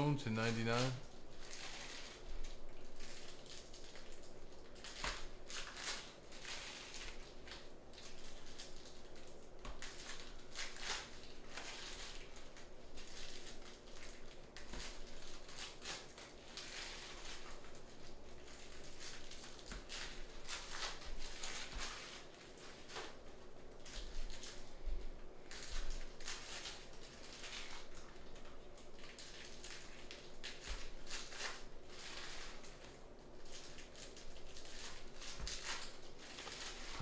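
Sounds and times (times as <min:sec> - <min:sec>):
trading cards rustling: 0:00.2 - 0:01.9.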